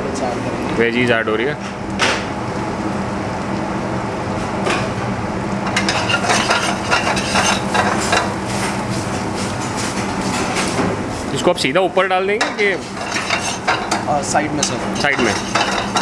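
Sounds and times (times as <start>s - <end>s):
steel spoon scraping a pan: 5.8s - 8.3s, 12.8s - 14.0s, 14.6s - 16.0s.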